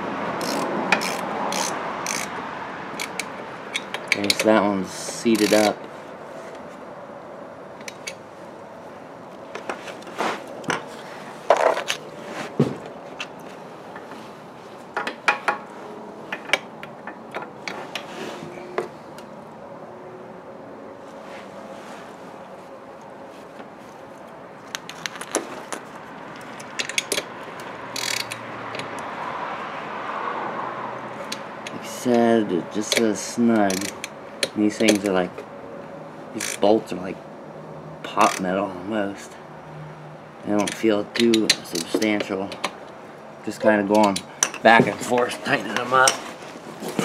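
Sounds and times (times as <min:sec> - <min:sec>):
socket ratchet clicking: 0:00.4 - 0:04.5, 0:27.9 - 0:29.0, 0:33.6 - 0:35.1
socket wrench clinking on concrete: 0:43.9 - 0:44.7.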